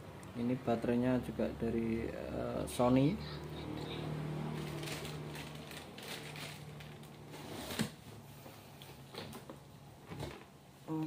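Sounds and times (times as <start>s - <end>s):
cardboard and foam rustling: 4.6s - 8.1s.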